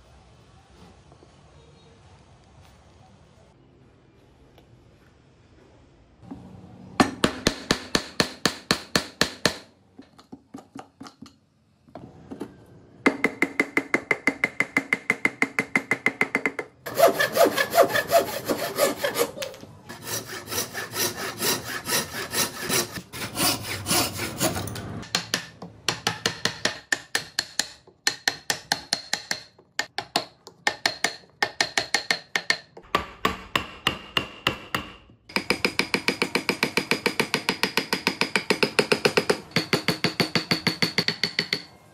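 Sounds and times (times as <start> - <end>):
chisels scraping wood: 16.9 - 24.8.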